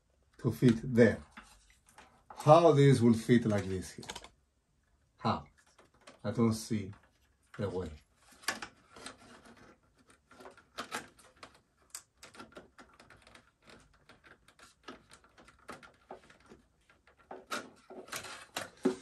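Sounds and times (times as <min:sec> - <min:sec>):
cables and plastic connectors clicking: 0:03.3 - 0:04.4, 0:05.5 - 0:19.0.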